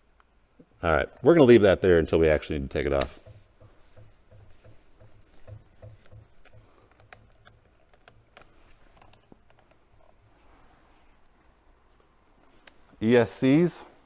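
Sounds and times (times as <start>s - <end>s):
plastic parts clicking and tapping: 3.0s - 9.8s.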